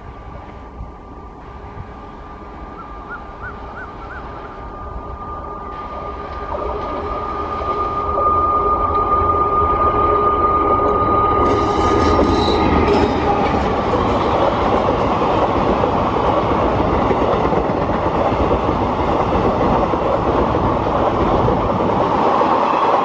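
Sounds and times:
electric locomotive running: 0:00.0 - 0:23.0
high-pitched whine: 0:01.4 - 0:14.7.

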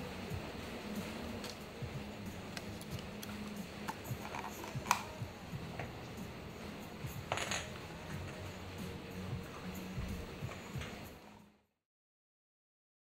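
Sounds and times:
ice shifting in cup: 0:02.6 - 0:05.2.

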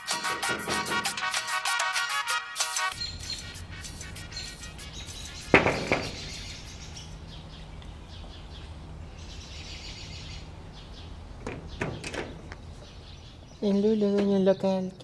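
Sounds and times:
birds chirping: 0:02.9 - 0:15.0
knocking on window pane: 0:05.5 - 0:06.4.

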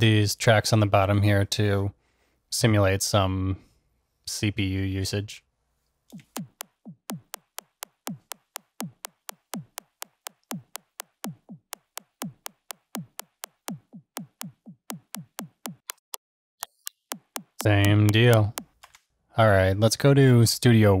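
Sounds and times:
sampler clicks with pitch-dropping thump: 0:06.1 - 0:18.8.

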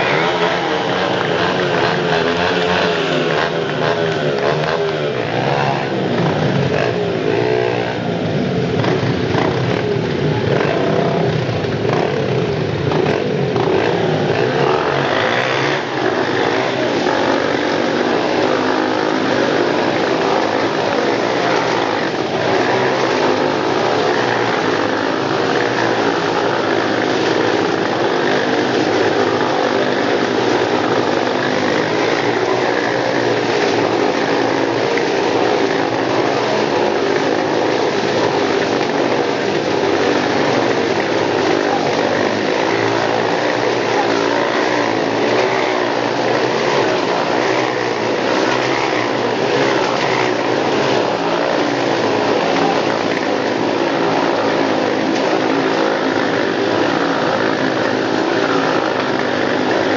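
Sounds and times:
dirt-bike engines revving: 0:00.0 - 0:59.9.

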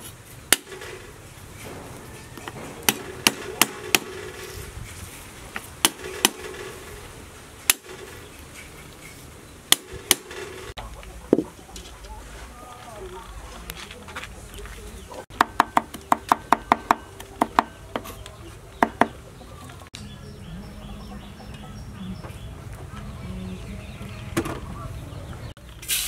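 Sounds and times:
cleaver knocking on wooden block: 0:15.3 - 0:18.1, 0:18.8 - 0:19.2.

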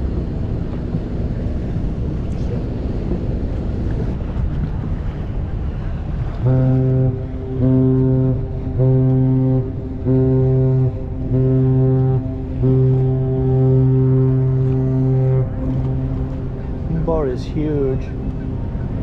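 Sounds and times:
choppy water: 0:00.0 - 0:19.0
wind: 0:00.0 - 0:19.0
ship's horn blasts: 0:06.2 - 0:19.0.

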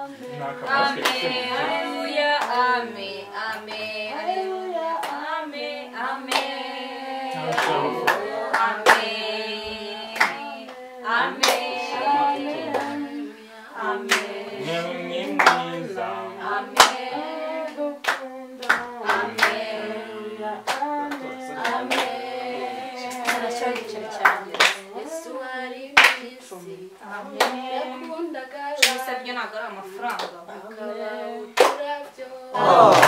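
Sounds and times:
voices singing a worship song: 0:00.0 - 0:33.0
hand claps: 0:00.7 - 0:01.6, 0:02.4 - 0:02.6, 0:06.3 - 0:06.6, 0:07.4 - 0:09.2, 0:10.1 - 0:10.8, 0:11.4 - 0:11.8, 0:12.6 - 0:13.0, 0:14.1 - 0:14.3, 0:15.3 - 0:15.8, 0:16.7 - 0:17.1, 0:18.0 - 0:19.7, 0:20.7 - 0:22.2, 0:23.1 - 0:24.8, 0:26.0 - 0:26.3, 0:31.6 - 0:31.9.

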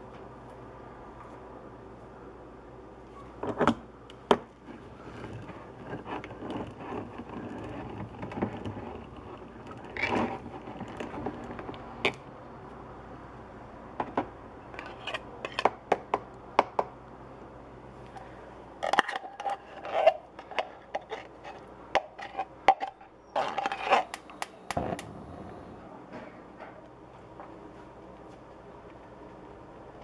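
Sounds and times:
utensil scraping chili into pot: 0:18.8 - 0:24.4.

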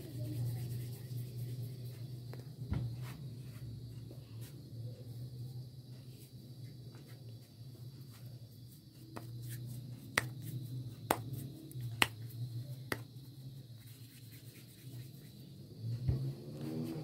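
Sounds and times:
low steady hum: 0:00.0 - 0:17.0
hands patting dough: 0:08.1 - 0:15.5.

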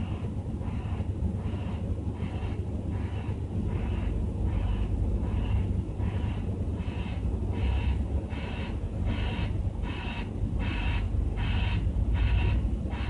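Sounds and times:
low engine rumble: 0:00.0 - 0:13.0
reversing alarm beeping: 0:07.7 - 0:13.0.

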